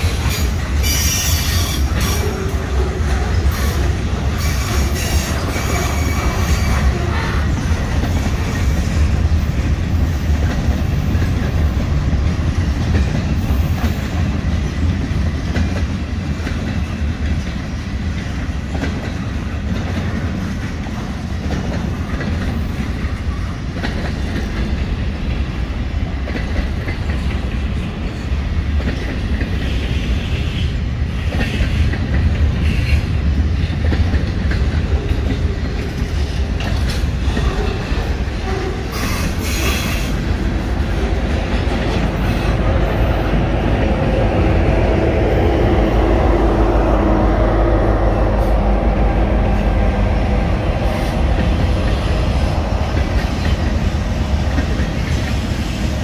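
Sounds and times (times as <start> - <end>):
freight train rumbling past: 0.0 - 56.0
wheels clicking over rail joints: 31.2 - 42.6.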